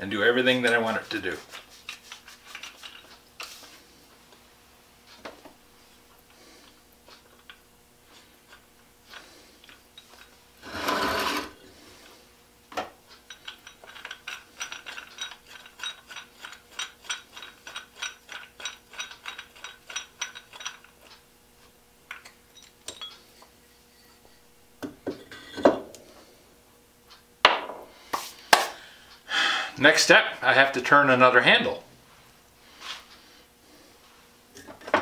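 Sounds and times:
short scraping rub: 10.6 - 11.7.

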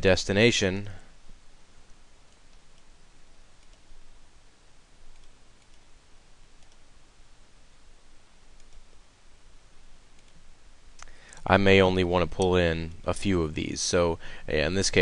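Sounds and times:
steady background hiss: 0.0 - 15.0
computer mouse clicks: 1.9 - 2.9, 3.6 - 3.9, 5.1 - 5.9, 6.6 - 6.9, 8.6 - 9.0, 10.2 - 10.4, 11.0 - 11.5.

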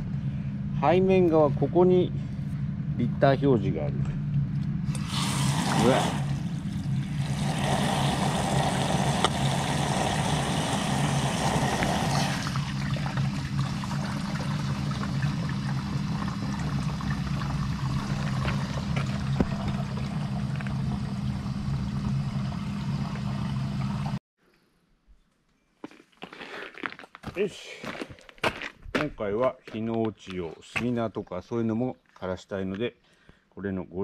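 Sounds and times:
steady low hum: 0.0 - 24.2
water pouring into tank: 5.0 - 24.2.

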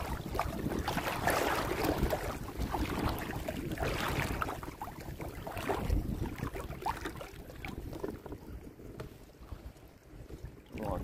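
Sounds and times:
water sloshing around wading legs: 0.0 - 11.0
wind rumble on microphone: 0.0 - 11.0.

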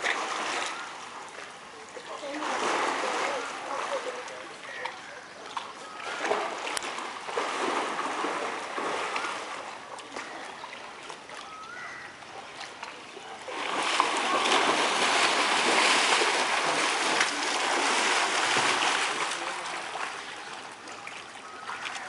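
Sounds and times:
bears splashing in water: 2.2 - 4.9, 6.0 - 10.4, 12.6 - 20.9.

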